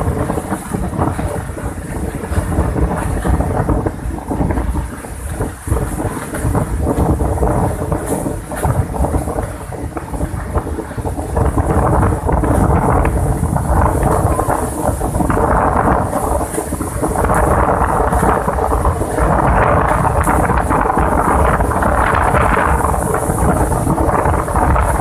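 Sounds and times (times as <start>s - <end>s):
heavy surf breaking: 0.0s - 25.0s
strong wind buffeting microphone: 0.0s - 25.0s.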